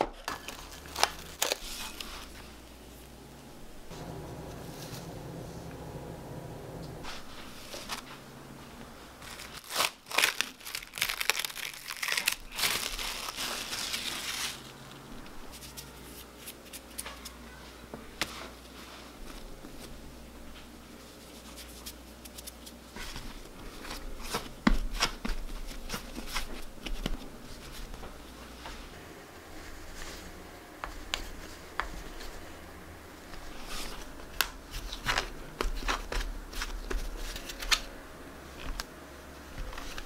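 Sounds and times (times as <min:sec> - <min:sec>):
dough handling sounds: 0:00.0 - 0:05.9, 0:18.1 - 0:40.0.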